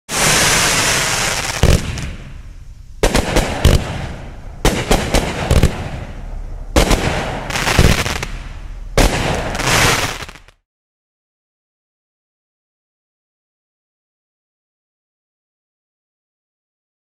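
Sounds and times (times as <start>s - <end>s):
fireworks bangs: 0.1s - 10.6s
fireworks hissing: 0.1s - 10.6s.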